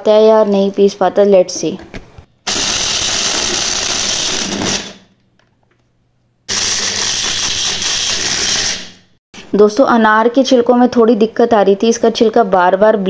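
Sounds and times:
blender motor grinding: 0:02.5 - 0:05.0, 0:06.5 - 0:09.0.

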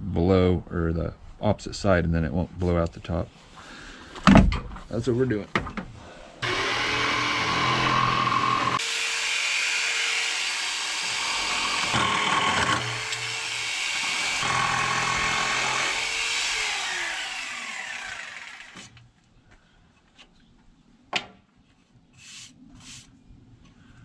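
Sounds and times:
jigsaw sawing through board: 0:06.4 - 0:19.0.

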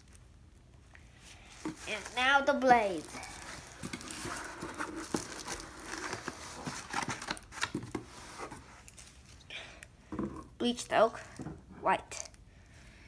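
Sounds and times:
packaging rustling and scraping: 0:01.3 - 0:09.4.

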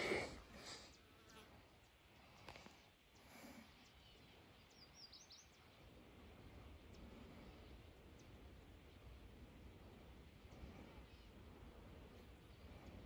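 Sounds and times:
bird chirps: 0:03.9 - 0:05.7.

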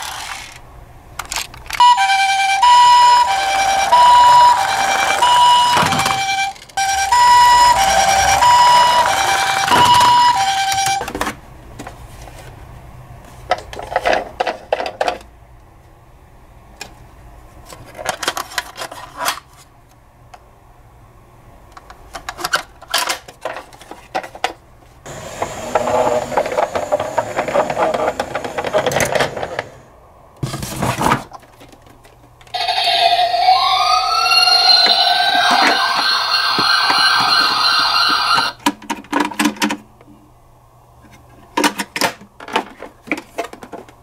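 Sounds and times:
toys rustling in box: 0:00.0 - 0:00.6, 0:30.4 - 0:32.1
rising electronic wail siren: 0:01.8 - 0:11.0, 0:32.6 - 0:38.6
toy siren: 0:01.8 - 0:11.0, 0:32.6 - 0:38.6.

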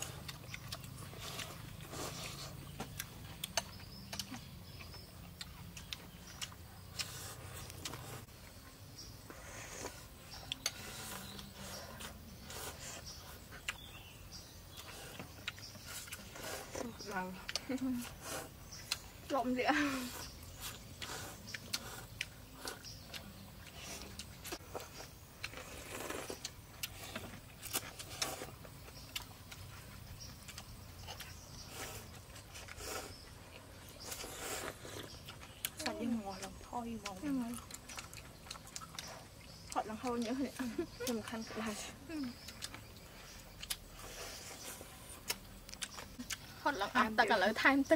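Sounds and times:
noodles slurped and chewed: 0:00.0 - 0:47.9
people slurping noodles: 0:15.8 - 0:23.0, 0:23.8 - 0:28.6, 0:31.6 - 0:37.6.

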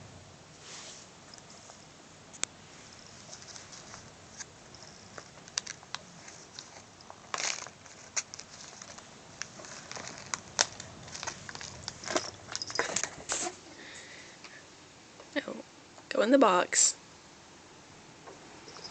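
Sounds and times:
bag rustle: 0:02.7 - 0:13.6
plastic bag crinkling and clicking: 0:03.2 - 0:13.5.

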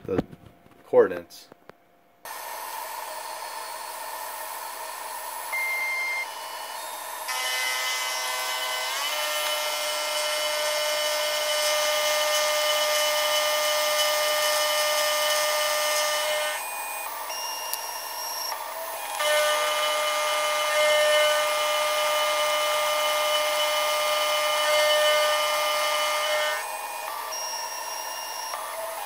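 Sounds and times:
spindle whine: 0:01.6 - 0:29.0
milling machine cutting metal: 0:02.3 - 0:29.0.

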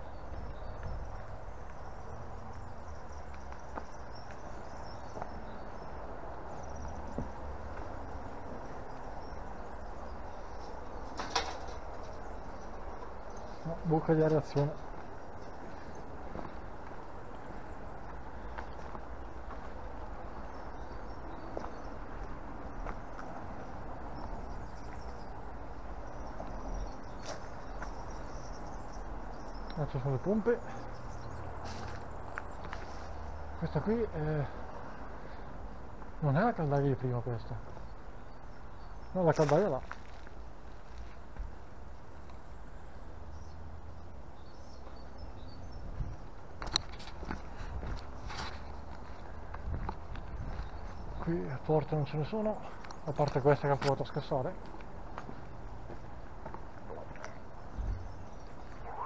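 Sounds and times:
footsteps on asphalt: 0:00.1 - 0:11.0, 0:11.9 - 0:29.7, 0:30.4 - 0:33.6, 0:34.6 - 0:36.2, 0:37.5 - 0:58.8.

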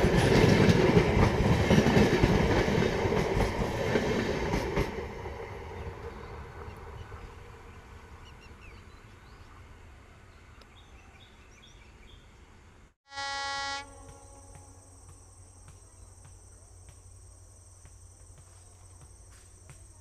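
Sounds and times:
train rumbling on track: 0:00.0 - 0:10.7.

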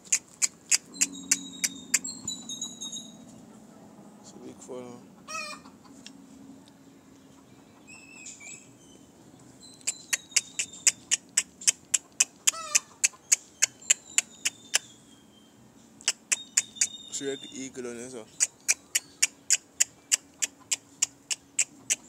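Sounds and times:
thin high tone: 0:00.9 - 0:03.4
chicken call: 0:12.5 - 0:13.2.

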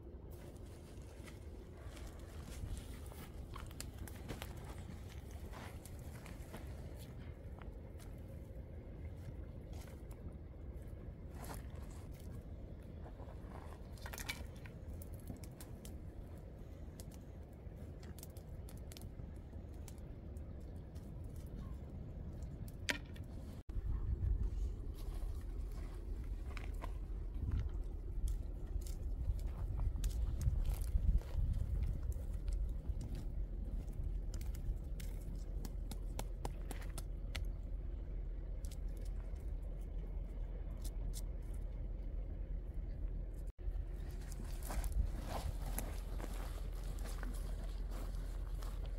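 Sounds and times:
steady low rumble: 0:00.0 - 0:48.9
twig fire crackling: 0:00.0 - 0:48.9
sticks and wood clicking: 0:27.6 - 0:37.6.

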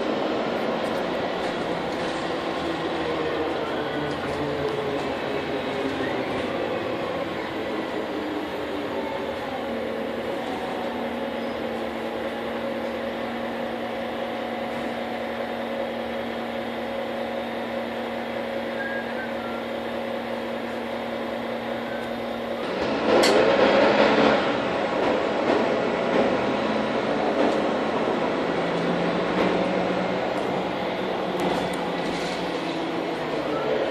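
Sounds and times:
bus engine idling: 0:00.0 - 0:23.6, 0:24.3 - 0:33.9
bus engine revving rough: 0:21.6 - 0:25.2.

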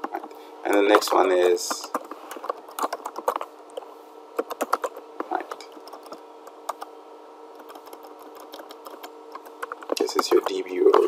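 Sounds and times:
keyboard typing: 0:00.0 - 0:03.8, 0:04.4 - 0:06.9, 0:07.5 - 0:11.0
steady hum: 0:00.0 - 0:11.0.

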